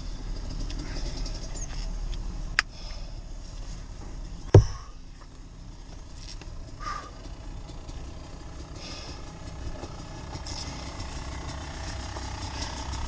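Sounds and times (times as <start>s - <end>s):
knocks against a car: 4.5s - 4.9s.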